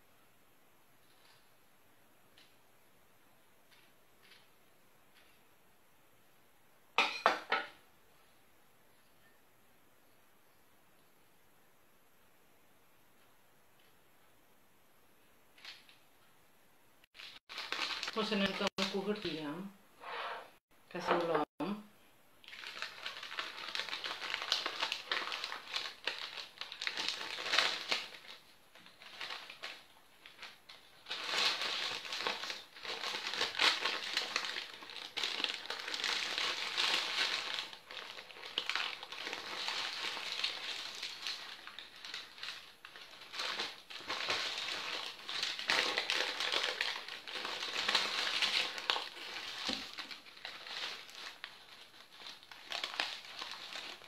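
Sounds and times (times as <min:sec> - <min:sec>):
baking paper crinkling: 0:17.2 - 0:19.4, 0:22.4 - 0:54.0.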